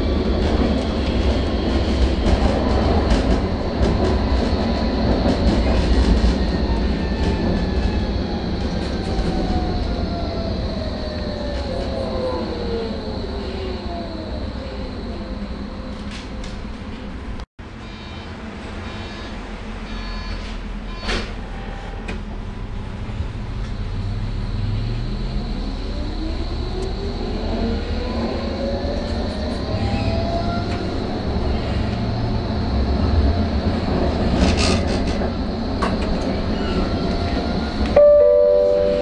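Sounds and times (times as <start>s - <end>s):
wheel and rail rumble: 0.0s - 17.5s, 18.4s - 39.0s
tram motor whine: 0.0s - 39.0s
two-note chime: 38.0s - 39.0s.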